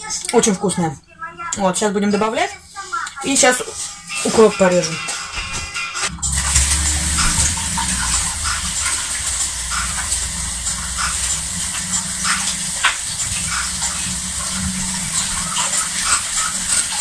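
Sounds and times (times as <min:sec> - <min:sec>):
steady rushing hum: 0:06.0 - 0:17.0.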